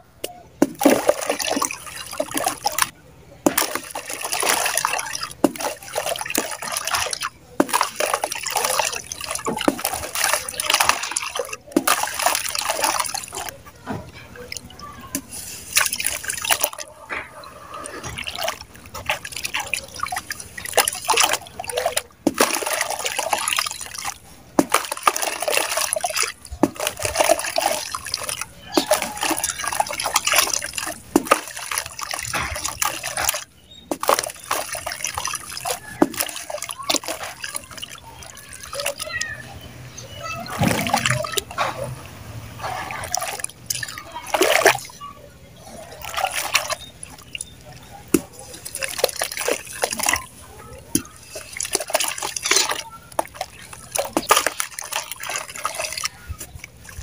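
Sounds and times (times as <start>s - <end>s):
mud chunks splashing and dripping: 0.0s - 57.0s
mud squelching: 0.0s - 57.0s
water sloshing: 0.0s - 57.0s.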